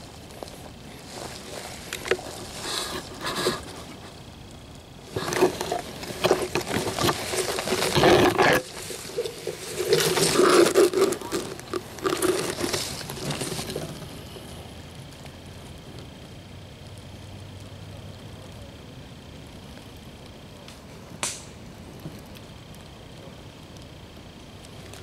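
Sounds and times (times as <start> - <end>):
leaves rustling and crunching: 0.0 - 15.8.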